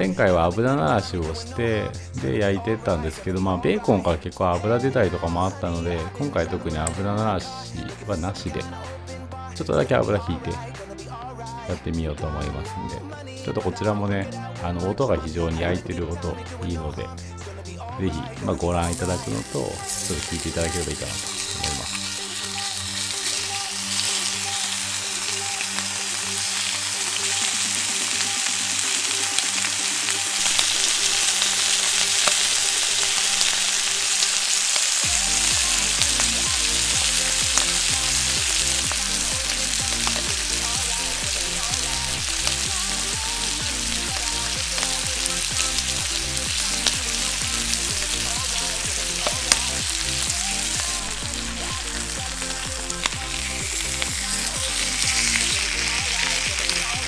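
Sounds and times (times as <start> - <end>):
bacon sizzling in a frying pan: 18.8 - 57.0
fat crackling and popping: 18.8 - 57.0.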